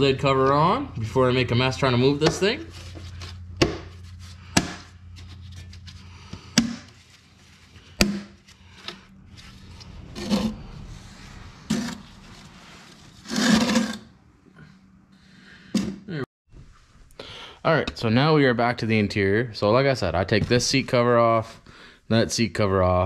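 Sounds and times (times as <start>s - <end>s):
rustling and scraping on concrete: 2.6s - 14.1s.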